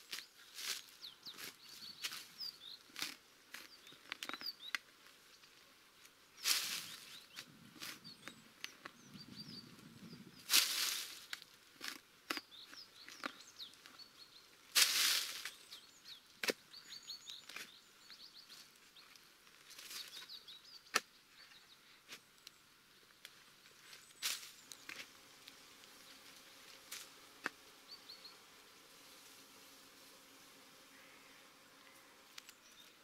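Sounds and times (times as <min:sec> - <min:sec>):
small birds chirping: 0:00.0 - 0:11.5, 0:12.3 - 0:33.0
shovel scraping into dry soil: 0:10.4 - 0:11.3, 0:14.7 - 0:15.7.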